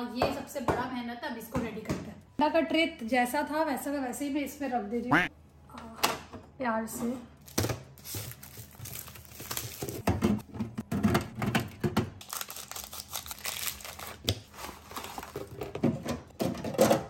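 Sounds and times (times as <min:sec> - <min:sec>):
plastic packaging crinkling and tearing: 0:07.9 - 0:10.0, 0:12.2 - 0:15.7.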